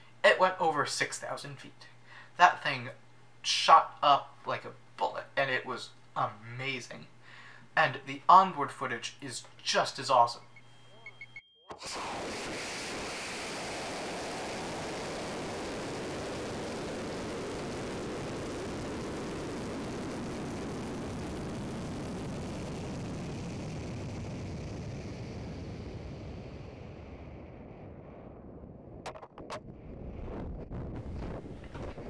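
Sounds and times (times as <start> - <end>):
wind rushing past camera: 26.9 - 32.0.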